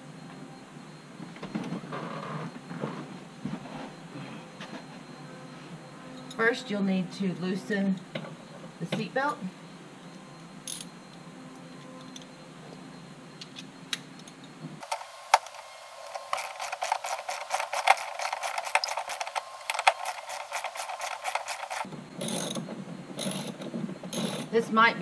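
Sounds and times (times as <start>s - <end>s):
ratchet wrench clicking rapidly: 16.2s - 22.6s.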